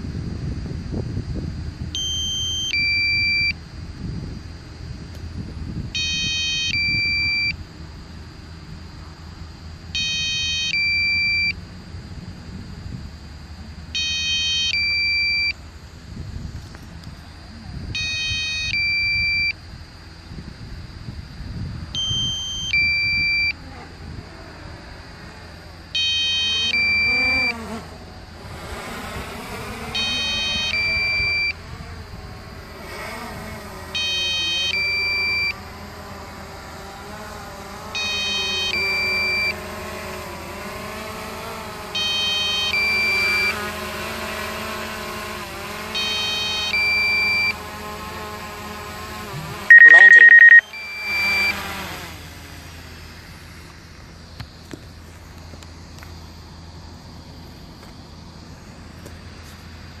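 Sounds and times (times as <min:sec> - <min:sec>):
wind on microphone: 0:00.0 - 0:02.0, 0:02.8 - 0:07.3, 0:16.1 - 0:18.1, 0:19.1 - 0:23.2
drone propeller whine: 0:23.1 - 0:43.5
controller low-battery beeping: 0:49.7 - 0:51.1.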